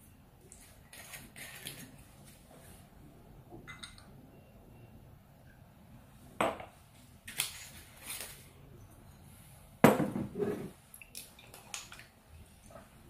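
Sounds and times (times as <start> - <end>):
bottle knocking on counter: 9.8 - 10.3
glass scraping on counter: 10.2 - 10.8.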